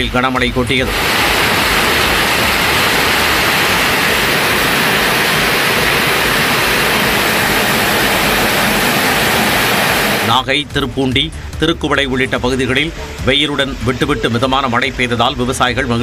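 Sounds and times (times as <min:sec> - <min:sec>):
heavy rain pouring: 0:00.8 - 0:10.3.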